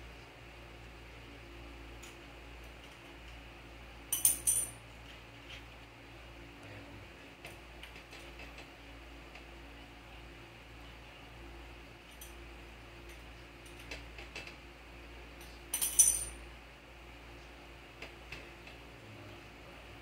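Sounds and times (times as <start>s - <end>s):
low steady hum: 0.0s - 20.0s
metallic jingling clatter: 4.1s - 4.8s, 15.7s - 16.4s.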